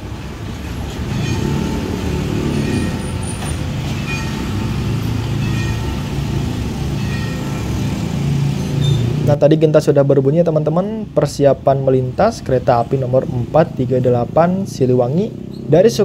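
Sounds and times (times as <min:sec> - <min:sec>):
small truck engine passing: 0:00.0 - 0:09.4
motorcycle engine passing: 0:00.9 - 0:09.3.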